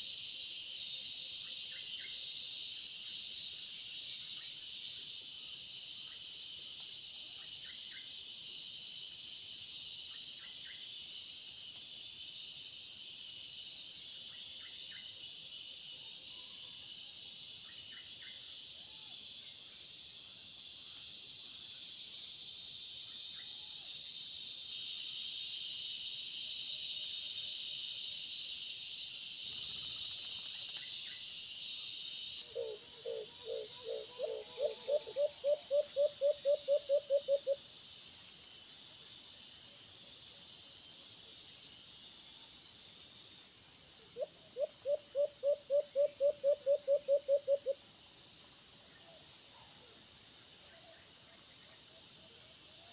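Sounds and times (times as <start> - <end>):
insect chorus: 0.0 - 52.9
dove hooting: 32.5 - 37.6, 44.2 - 47.8.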